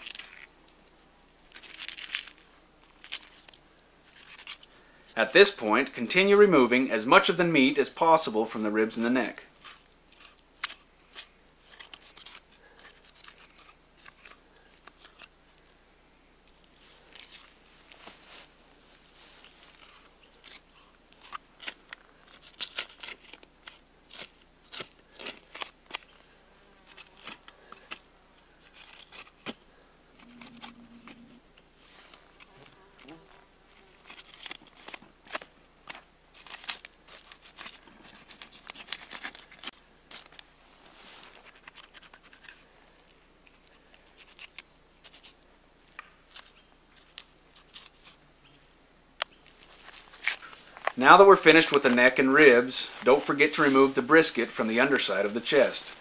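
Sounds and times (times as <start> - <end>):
meat tearing: 0.0 - 0.5, 1.5 - 4.7, 9.6 - 15.4, 19.3 - 31.3, 32.4 - 40.4, 41.4 - 42.6, 43.5 - 48.2.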